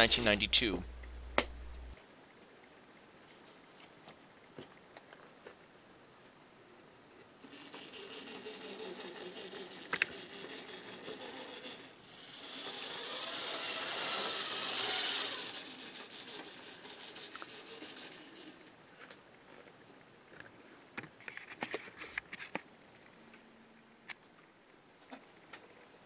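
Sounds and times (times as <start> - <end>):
model train motor whirring: 7.4 - 19.1
wheels rolling on rails: 7.4 - 19.8.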